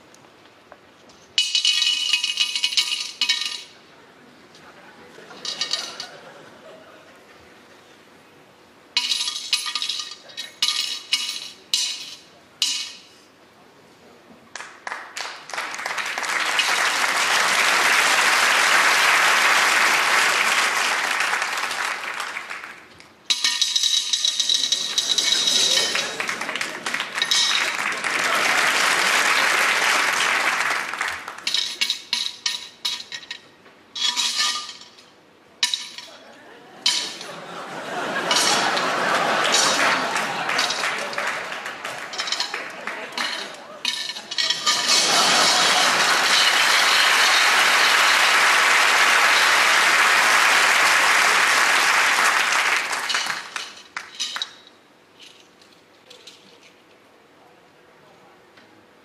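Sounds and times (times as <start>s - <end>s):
glass clinks ringing: 1.4s - 3.8s, 9.0s - 13.2s, 23.3s - 26.3s, 27.2s - 28.4s, 36.8s - 48.4s
audience applause: 14.6s - 22.9s, 25.1s - 31.5s, 37.3s - 43.8s, 44.5s - 54.2s.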